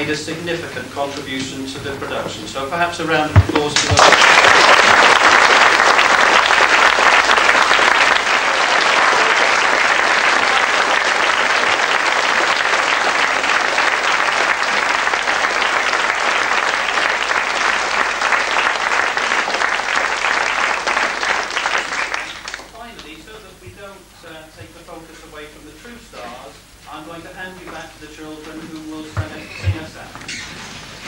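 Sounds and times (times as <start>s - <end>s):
audience applauding: 3.4s - 22.8s.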